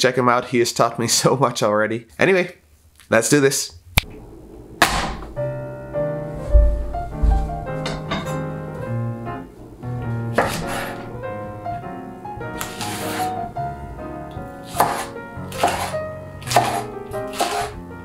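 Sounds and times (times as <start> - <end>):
background music melody: 4.2 - 18.0.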